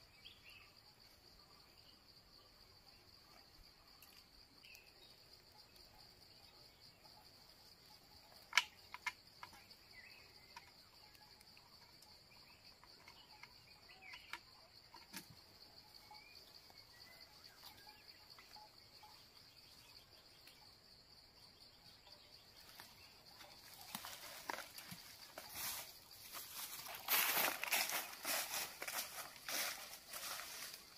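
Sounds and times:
high insect drone: 0.0s - 30.9s
clicks and snaps of bamboo trap: 8.4s - 9.6s.

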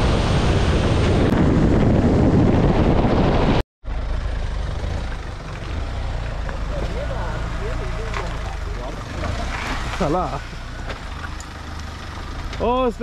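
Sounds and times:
car engine running: 3.8s - 13.0s.

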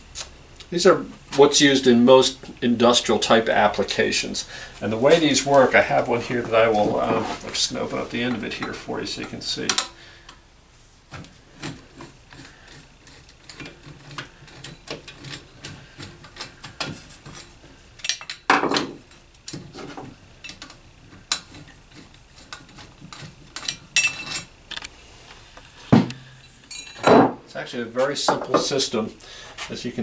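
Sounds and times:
metal clicks scrapes and knocks: 11.1s - 24.9s.

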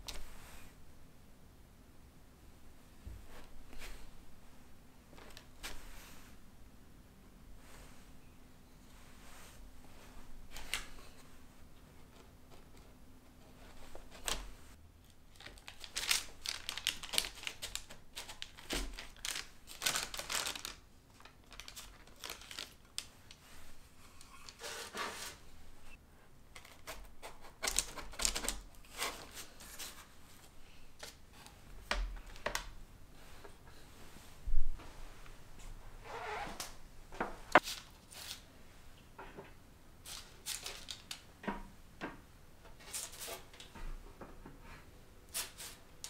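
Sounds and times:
taps scrapes and paper rustles: 15.4s - 23.4s.

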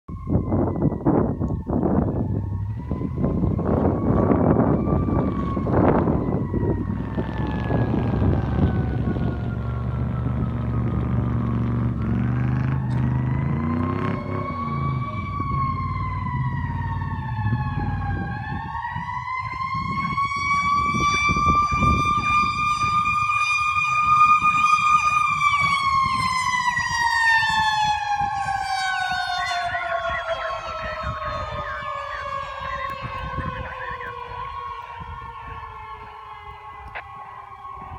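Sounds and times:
fire engine siren wailing: 0.1s - 37.9s
heavy truck engine rumbling: 1.4s - 19.0s.

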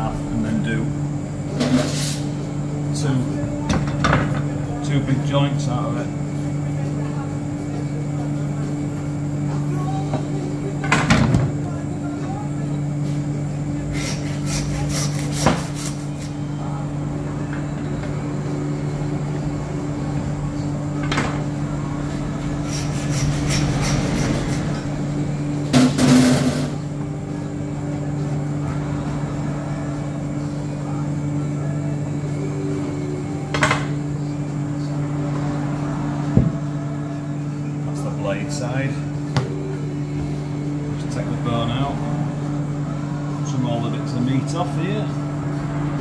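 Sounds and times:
steady low hum: 0.0s - 46.0s
bone saw cutting meat: 13.9s - 16.4s, 22.6s - 24.7s.

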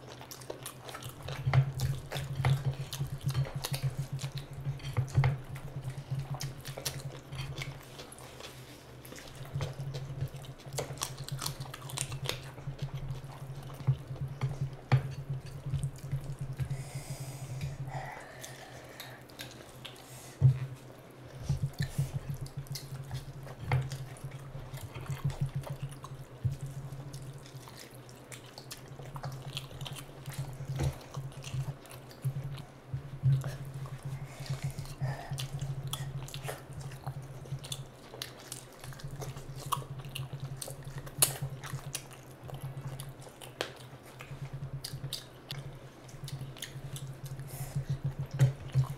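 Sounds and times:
steady low hum: 0.0s - 48.9s
lip smacks and chewing: 33.3s - 48.9s.

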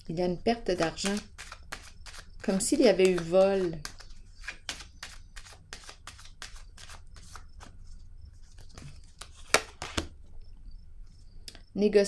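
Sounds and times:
cards flicking and rustling: 0.7s - 10.1s.

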